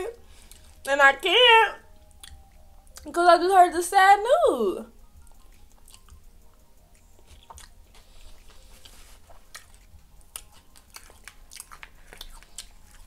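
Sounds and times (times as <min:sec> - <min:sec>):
chewing mouth clicks and smacks: 0:02.1 - 0:03.1, 0:05.2 - 0:13.0.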